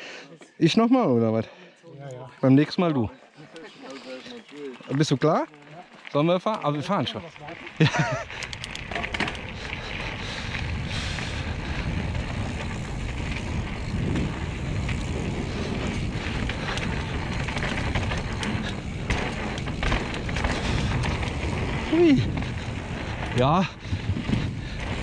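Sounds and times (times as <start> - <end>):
bike tyres rolling on gravel: 3.8 - 25.0
wind buffeting microphone: 8.1 - 25.0
short clicks and rattles: 8.3 - 9.5.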